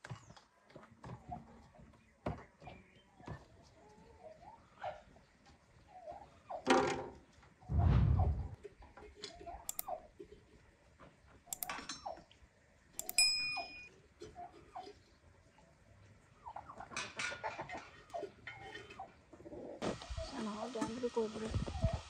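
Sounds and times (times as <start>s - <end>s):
chickens clucking: 1.0s - 6.7s, 14.2s - 20.5s
sharp metallic clink: 13.0s - 13.9s.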